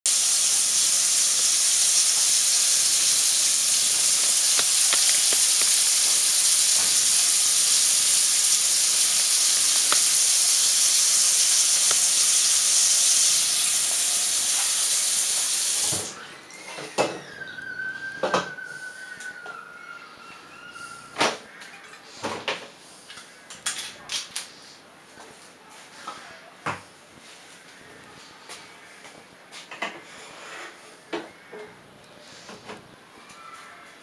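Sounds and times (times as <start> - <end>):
tap running into sink: 2.8 - 13.5, 14.4 - 16.1.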